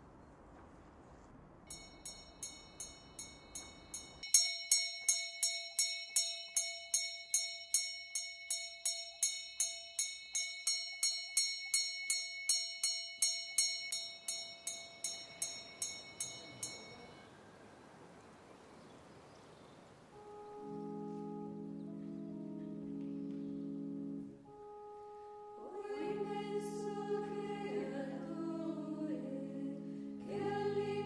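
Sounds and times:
small bell ringing rapidly: 0:01.7 - 0:17.2.

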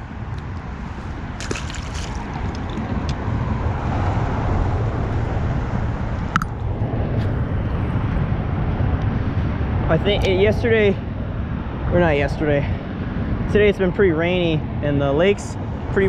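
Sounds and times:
wind rumble on microphone: 0:00.0 - 0:16.0
water lapping against shoreline: 0:01.4 - 0:03.1.

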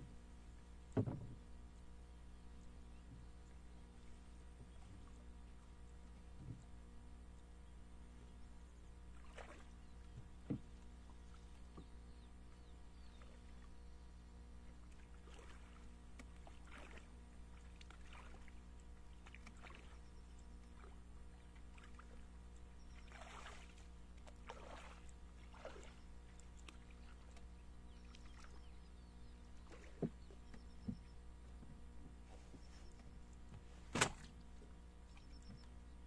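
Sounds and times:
small water splashes: 0:09.1 - 0:11.8, 0:14.8 - 0:28.8, 0:29.6 - 0:30.9, 0:33.9 - 0:35.6.

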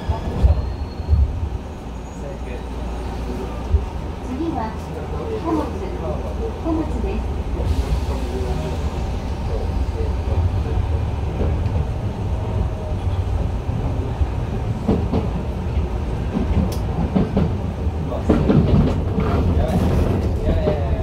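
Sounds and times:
electric train rumble: 0:00.0 - 0:21.0
rail clacks: 0:06.7 - 0:21.0.

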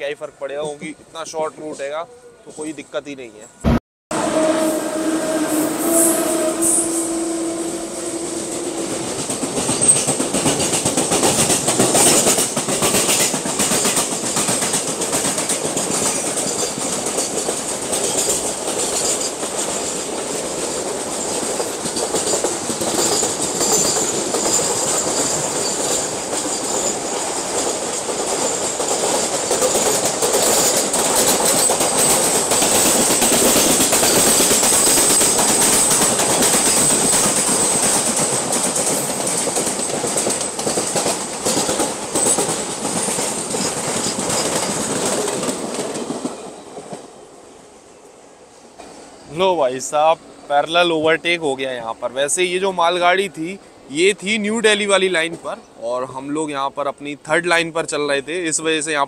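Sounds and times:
steady tone: 0:03.6 - 0:09.7
freight train rumbling past: 0:04.1 - 0:55.8
train wheels clattering over rail joints: 0:08.8 - 0:47.1.

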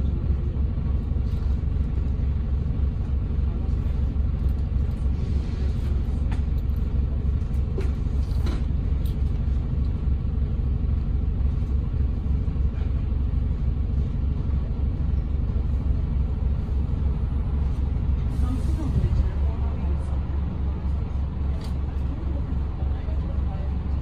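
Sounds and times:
bus interior rumble: 0:00.0 - 0:24.0.

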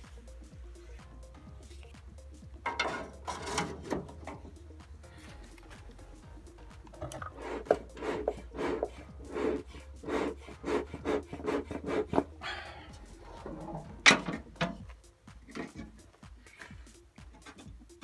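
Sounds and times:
metal lid shutting: 0:02.7 - 0:04.4, 0:14.0 - 0:14.8
rasping scraping strokes: 0:02.7 - 0:04.4, 0:07.0 - 0:14.8.

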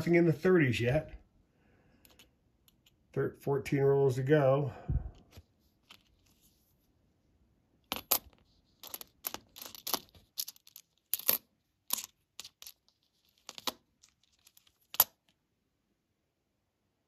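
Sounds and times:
coins clicking together: 0:07.9 - 0:12.8.

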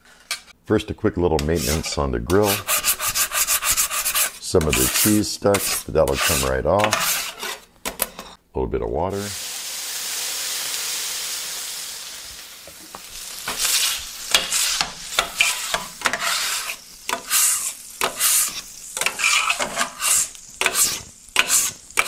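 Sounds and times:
scrubbing strokes on griddle: 0:01.4 - 0:07.7, 0:13.1 - 0:22.0
water sizzling on hot griddle: 0:09.2 - 0:22.0.

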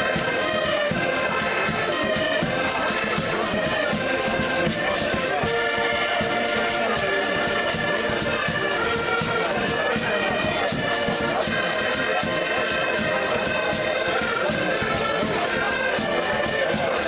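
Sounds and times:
button accordions playing: 0:00.0 - 0:17.0.

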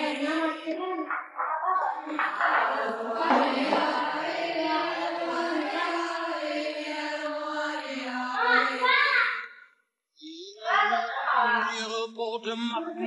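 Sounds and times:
choir singing long notes: 0:00.0 - 0:00.7, 0:02.0 - 0:08.9.

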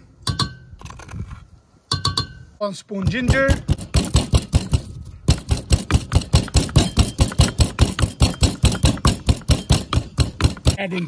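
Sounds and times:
pestle pounding in wooden mortar: 0:03.0 - 0:11.0.

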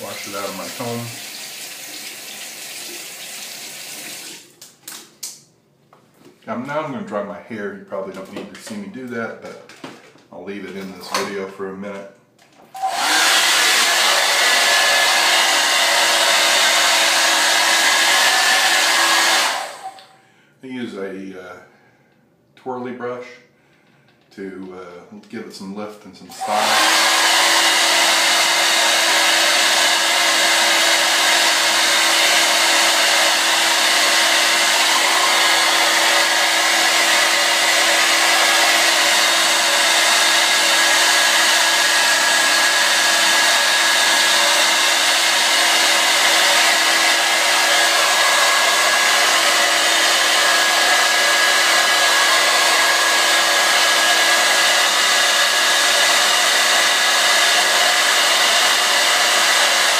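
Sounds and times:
hair dryer blowing: 0:00.0 - 0:02.4, 0:12.7 - 0:20.2, 0:26.3 - 0:59.9.

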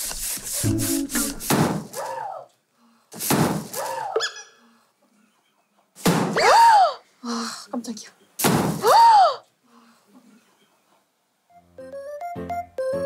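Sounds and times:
hand air pump strokes: 0:00.0 - 0:01.6.

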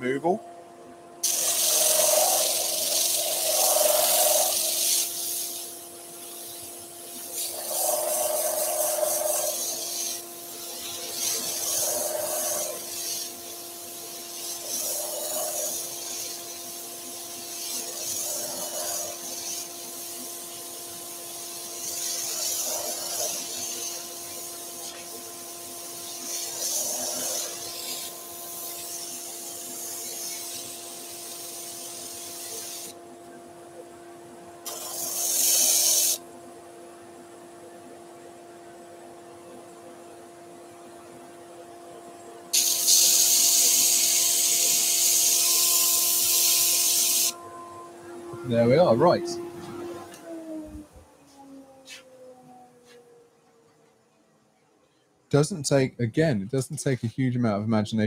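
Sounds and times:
steady hum: 0:00.0 - 0:53.5
wood grinding on sanding disc: 0:01.3 - 0:05.2, 0:07.2 - 0:10.2, 0:10.8 - 0:13.4, 0:14.4 - 0:16.7, 0:17.4 - 0:20.3, 0:21.8 - 0:24.2, 0:26.0 - 0:30.8.

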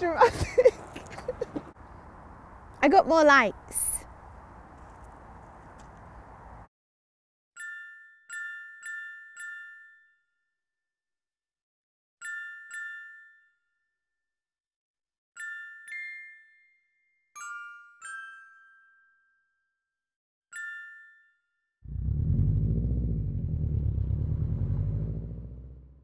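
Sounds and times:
car engine roaring: 0:21.9 - 0:26.0.

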